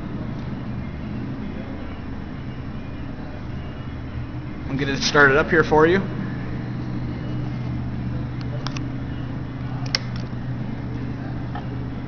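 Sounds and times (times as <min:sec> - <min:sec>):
low background hum: 0:00.0 - 0:12.0
ignition key clicks: 0:09.8 - 0:10.3.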